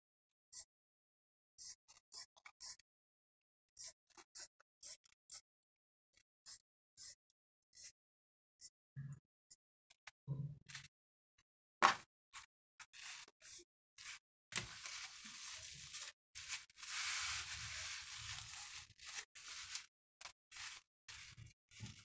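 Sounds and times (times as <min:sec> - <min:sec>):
fabric rustling and rubbing: 0:14.0 - 0:19.9, 0:20.5 - 0:22.0.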